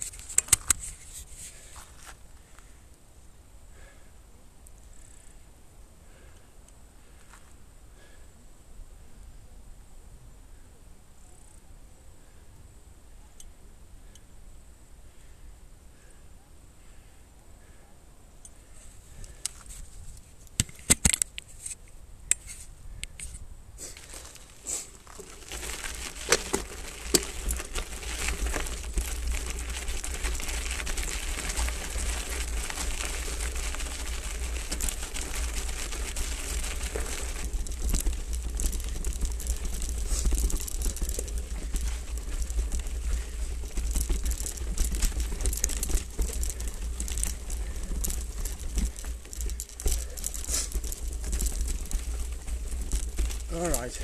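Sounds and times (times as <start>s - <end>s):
bike frame rattling: 0.0s - 1.8s, 19.1s - 54.0s
bike tyres crunching on gravel: 0.0s - 2.8s, 18.8s - 20.2s, 23.8s - 54.0s.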